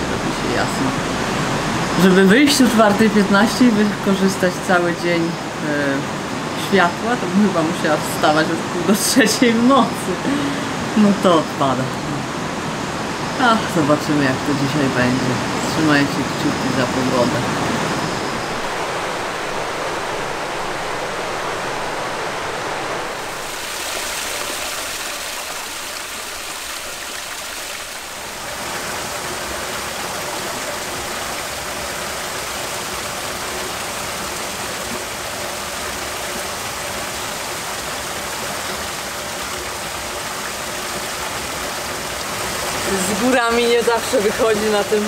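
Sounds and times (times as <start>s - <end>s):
river flowing over rocks: 0.0s - 45.0s
water splashing into stone basin: 23.1s - 36.4s.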